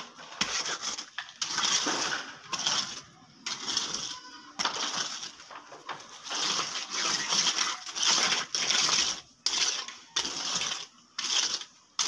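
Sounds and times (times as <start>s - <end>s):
trowel scraping wet concrete: 0.0s - 12.0s.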